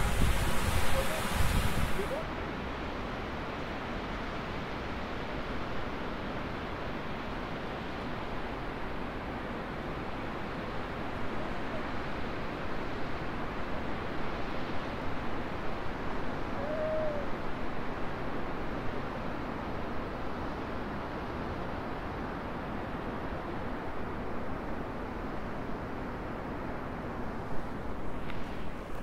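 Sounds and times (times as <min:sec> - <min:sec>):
gusty rushing noise: 0:00.0 - 0:02.3.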